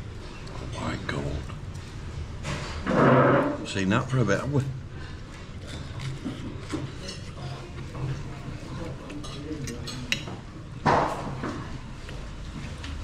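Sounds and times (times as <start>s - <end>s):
background chatter: 0.1s - 12.6s
cutlery and crockery clinking: 9.0s - 11.6s.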